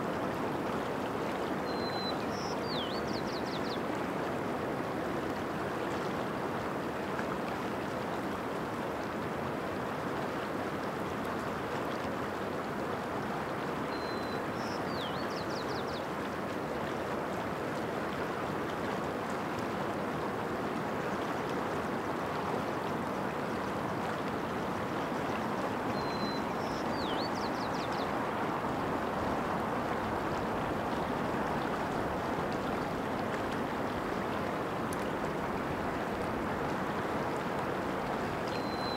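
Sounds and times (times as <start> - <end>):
mountain stream rushing: 0.0 - 38.9
small bird calling: 25.9 - 28.2, 38.6 - 38.9.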